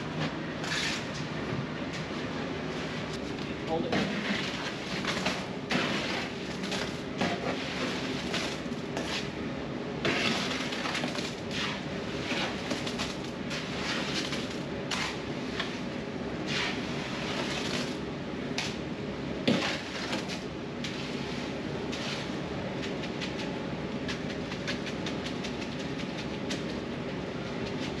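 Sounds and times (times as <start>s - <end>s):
low mechanical hum: 0.0s - 28.0s
trowel scraping wet concrete: 0.6s - 1.2s, 3.9s - 9.3s, 10.0s - 12.8s, 13.6s - 15.2s, 16.4s - 17.8s, 19.5s - 20.3s.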